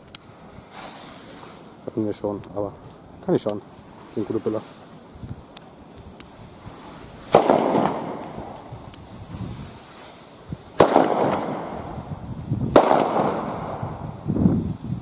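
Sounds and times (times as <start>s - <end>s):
firecracker bangs echoing: 7.2s - 8.8s, 10.7s - 14.3s.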